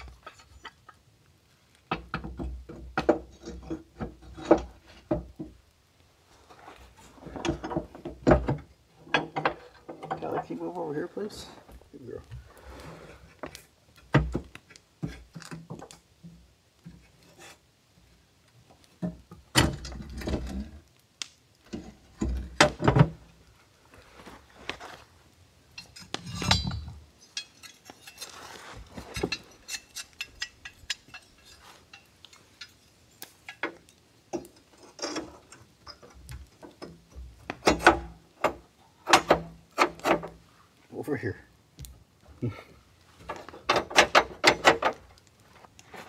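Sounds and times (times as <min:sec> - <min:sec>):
metal stove parts clanking: 0:25.8 - 0:28.4, 0:29.0 - 0:40.3, 0:43.6 - 0:45.0.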